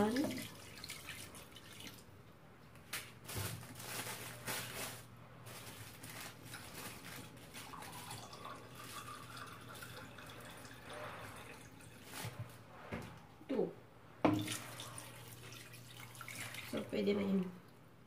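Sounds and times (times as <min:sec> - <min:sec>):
water poured into metal pot: 0:07.3 - 0:12.1, 0:14.3 - 0:16.9
kitchen tap running into mug: 0:07.6 - 0:12.0.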